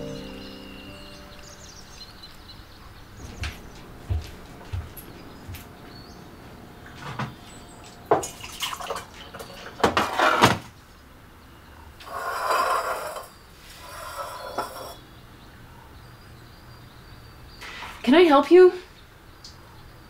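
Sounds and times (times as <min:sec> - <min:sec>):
dishes and cups clinking: 0:13.9 - 0:15.0.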